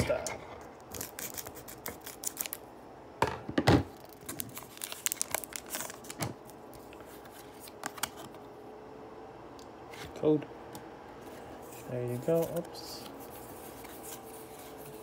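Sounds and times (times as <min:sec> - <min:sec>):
foil wrapper crinkling: 0:00.9 - 0:02.6, 0:04.0 - 0:08.1
scissors snipping foil: 0:00.9 - 0:02.6.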